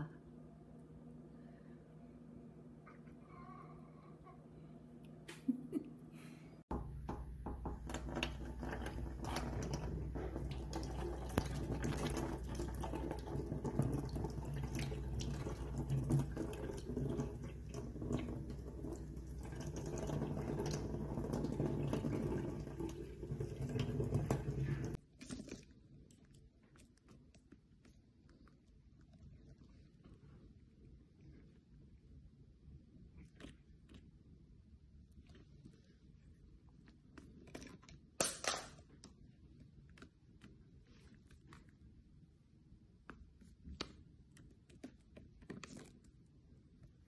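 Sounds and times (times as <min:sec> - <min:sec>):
tap water splashing into sink: 0:06.7 - 0:25.0.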